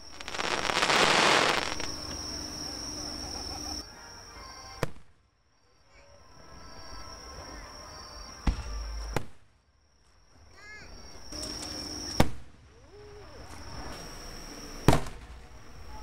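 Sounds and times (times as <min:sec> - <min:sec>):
fireworks bangs: 0:00.0 - 0:03.8, 0:11.4 - 0:12.5, 0:14.8 - 0:15.9
fireworks rumbling and crackle: 0:00.0 - 0:03.9, 0:04.8 - 0:05.2, 0:08.4 - 0:09.5, 0:11.2 - 0:16.0.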